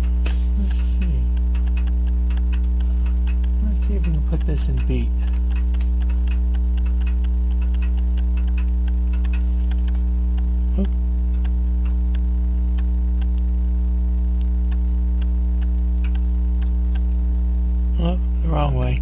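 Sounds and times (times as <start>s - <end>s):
clock ticking: 0.0s - 13.5s, 14.2s - 17.2s
mains hum: 0.0s - 19.0s.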